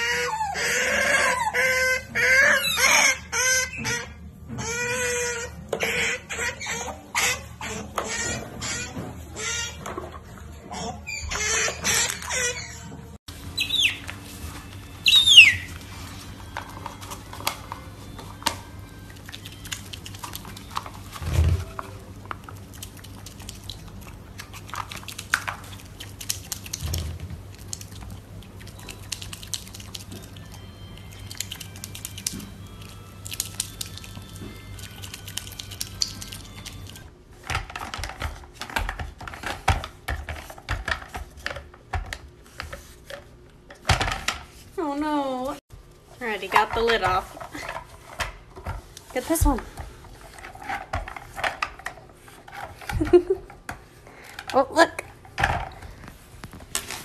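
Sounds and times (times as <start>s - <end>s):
otters chirping and squeaking: 0.0s - 9.8s, 10.7s - 14.3s, 14.9s - 15.8s.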